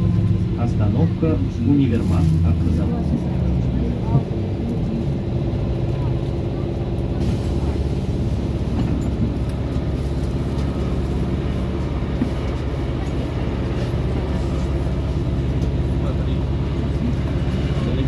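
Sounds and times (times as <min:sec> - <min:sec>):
road and tyre rumble: 0:00.0 - 0:18.0.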